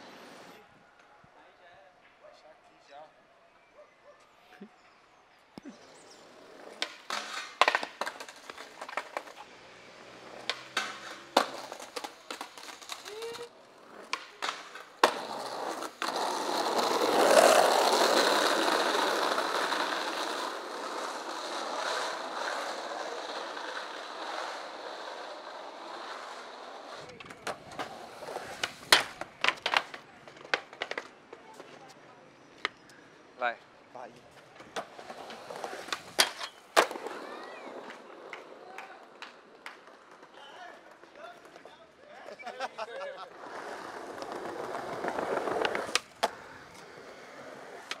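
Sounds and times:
skateboard wheels rolling on asphalt: 0.0s - 0.7s, 5.1s - 48.0s
skateboard clacking: 6.5s - 31.9s, 34.5s - 41.7s, 43.4s - 48.0s.

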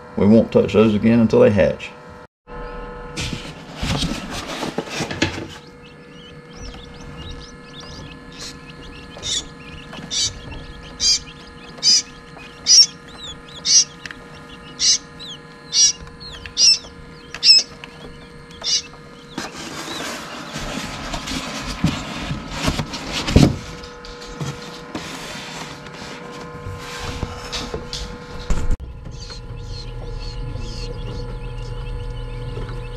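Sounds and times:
faint steady hum: 0.1s - 32.9s
hand scraping foam shell: 3.2s - 28.6s
chicks peeping: 3.3s - 25.2s, 27.9s - 32.9s.

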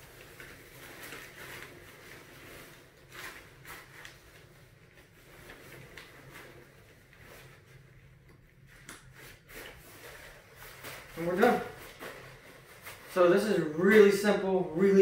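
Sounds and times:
tent fabric rustling: 0.0s - 8.1s, 9.2s - 15.0s.

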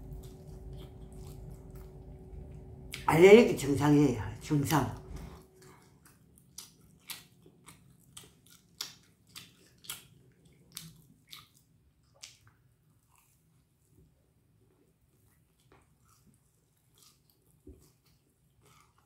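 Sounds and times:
close-up chewing clicks: 5.6s - 13.4s.

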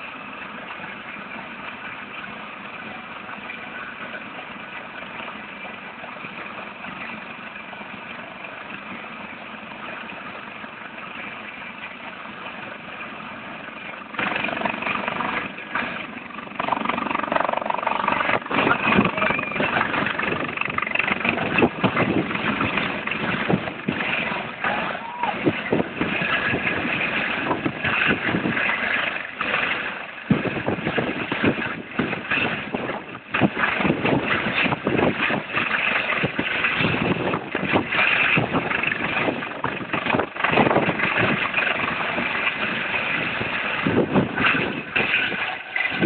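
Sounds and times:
helicopter rotor noise: 0.0s - 46.0s
helicopter turbine whine: 0.0s - 46.0s
wind buffeting microphone: 14.2s - 46.0s.

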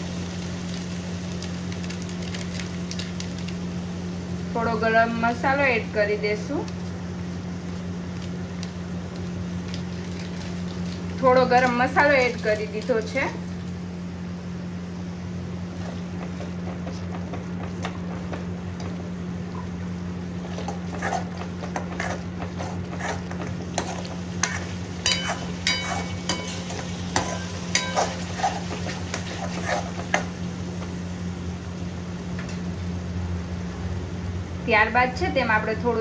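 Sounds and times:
gravy sizzling in a pan: 0.0s - 33.0s
steady low hum: 0.0s - 36.0s
spoon stirring and scraping: 20.4s - 30.3s
spoon clinking against pan: 25.0s - 28.2s.

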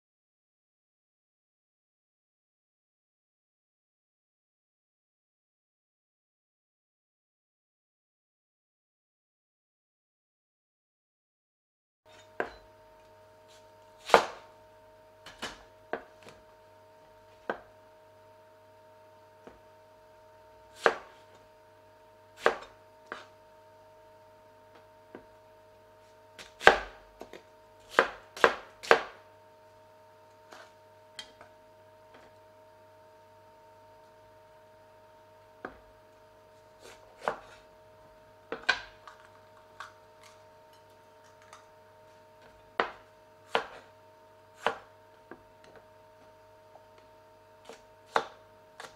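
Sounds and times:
faint steady hum: 12.1s - 48.9s
cleaver chopping on plastic board: 14.0s - 14.5s, 20.8s - 21.2s, 22.4s - 23.3s, 26.4s - 29.2s, 36.8s - 37.6s, 38.5s - 40.4s, 42.8s - 43.9s, 44.6s - 45.8s, 47.6s - 48.9s.

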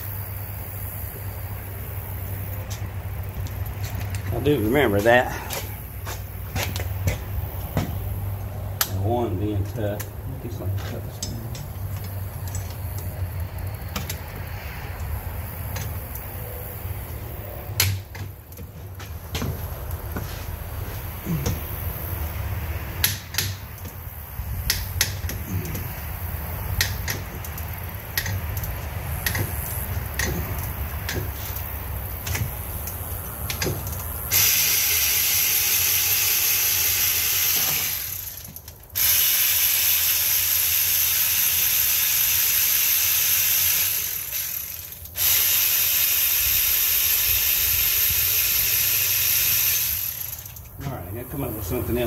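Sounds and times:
loud steady hiss: 19.4s - 52.0s
ratchet clicking: 23.0s - 50.8s.

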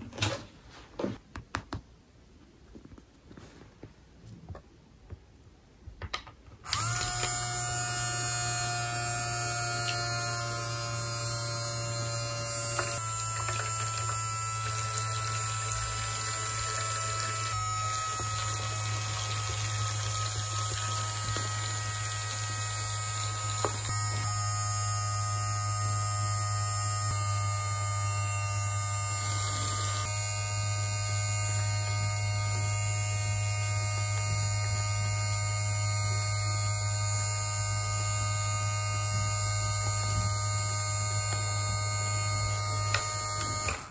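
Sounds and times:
toy water pump humming: 6.6s - 43.9s
water streaming into tub: 12.9s - 24.0s.

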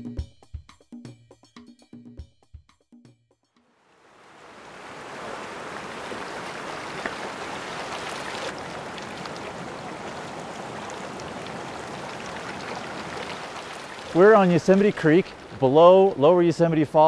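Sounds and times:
creek water rushing: 3.9s - 17.0s.

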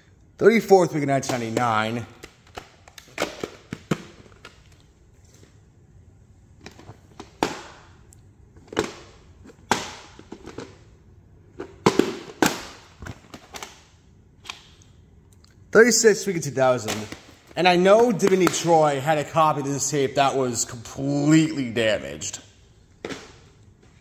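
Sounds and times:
plastic cassettes clicking and knocking: 1.2s - 4.8s, 8.6s - 10.8s, 11.6s - 13.9s, 16.8s - 18.7s.

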